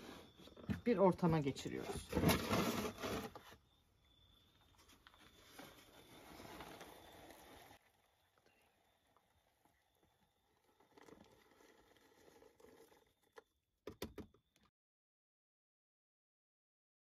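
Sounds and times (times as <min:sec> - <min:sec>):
larvae and compost sliding: 0:01.6 - 0:03.6, 0:04.7 - 0:13.4.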